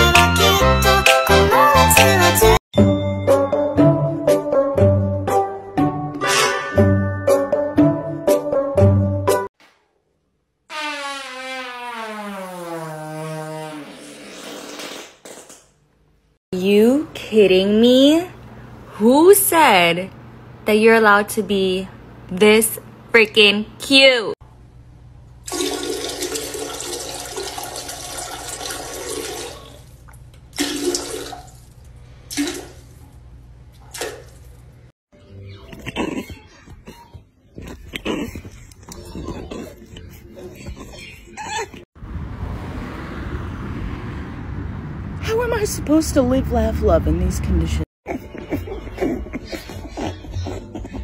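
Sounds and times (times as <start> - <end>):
long fart: 10.7 - 15.2
toilet flushing: 25.4 - 33.0.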